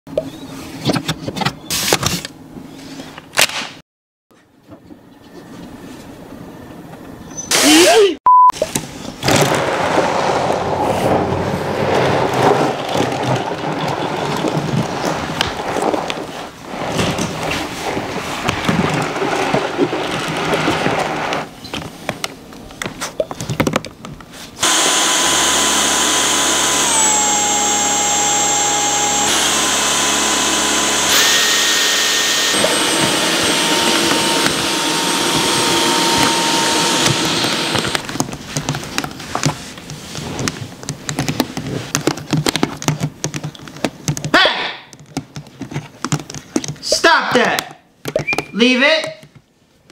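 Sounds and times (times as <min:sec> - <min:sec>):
vacuum cleaner motor whine: 0:24.6 - 0:38.0.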